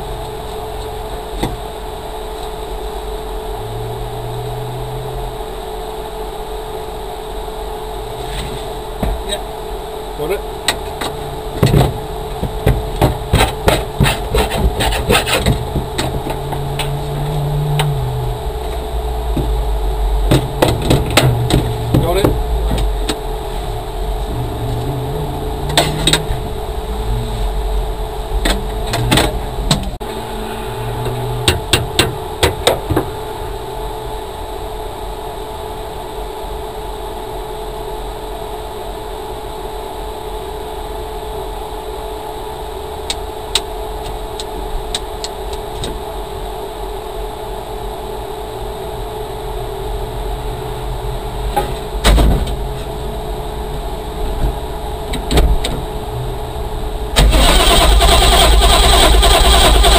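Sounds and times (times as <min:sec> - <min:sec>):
steady low hum: 0:00.0 - 0:59.9.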